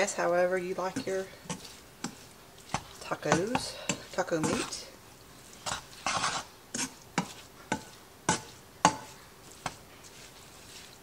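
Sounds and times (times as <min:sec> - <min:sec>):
meat chopper scraping ground beef: 0:05.6 - 0:11.0.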